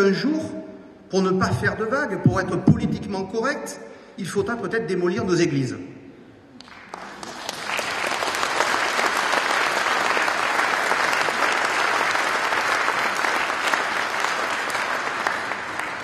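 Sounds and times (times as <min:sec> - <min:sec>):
audience applauding: 0:06.6 - 0:16.0.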